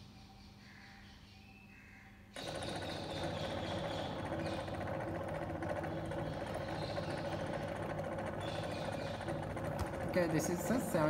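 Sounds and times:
electric motors humming: 2.4 - 11.0.

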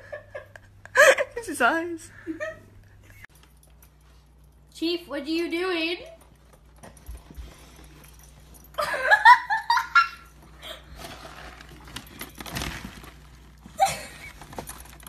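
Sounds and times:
dog rummaging in plastic bag: 10.3 - 15.0.

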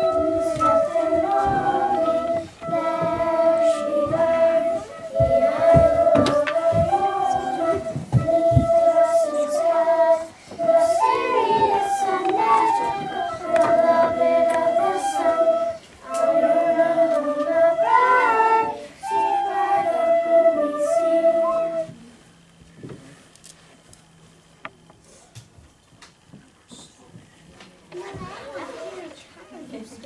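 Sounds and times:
children singing in unison: 0.0 - 21.9.

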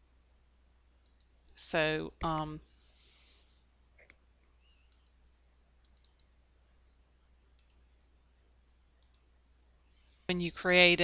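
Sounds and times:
low steady hum: 0.0 - 11.0
computer mouse button clicks: 5.8 - 6.3.

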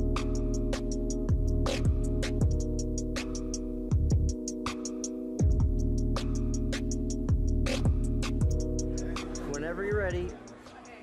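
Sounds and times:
sliding bass notes: 0.0 - 10.3
held synth chords: 0.0 - 11.0
hip-hop beat: 0.0 - 11.0.

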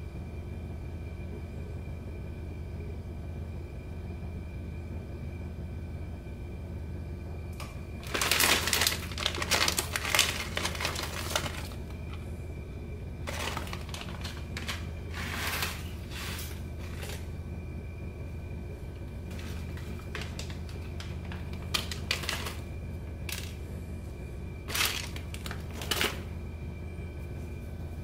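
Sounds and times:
dry noodles crackling: 7.6 - 17.4, 18.8 - 23.7, 24.5 - 26.4.

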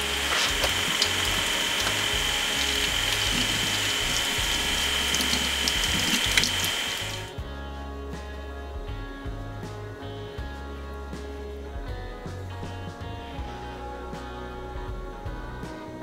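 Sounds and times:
faucet water running into sink: 0.0 - 7.3
background music: 0.0 - 16.0.

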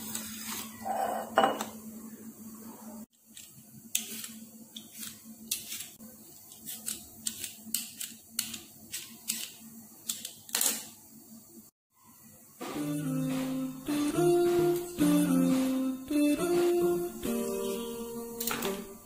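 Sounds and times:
peeler scraping cucumber skin: 3.3 - 10.7.

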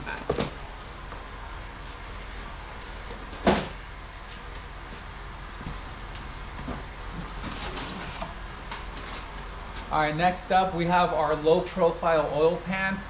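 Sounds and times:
cardboard box scraping and rustling: 6.7 - 8.3.

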